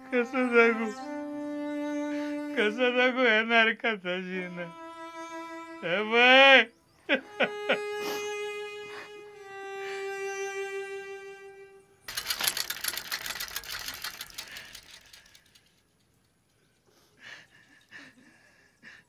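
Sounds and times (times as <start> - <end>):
background music note: 0.0 - 3.4, 4.1 - 12.7
bicycle freewheel ticking: 12.1 - 16.2.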